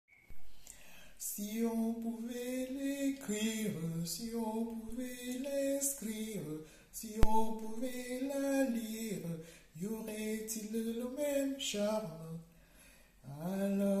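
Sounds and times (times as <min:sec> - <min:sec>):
sharp click: 0:07.2 - 0:07.8.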